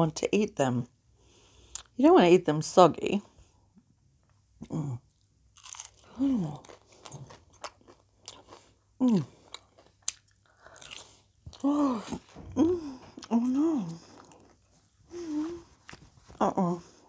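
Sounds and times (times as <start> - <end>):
chips crunching and chewing: 5.2 - 11.7, 13.2 - 14.6.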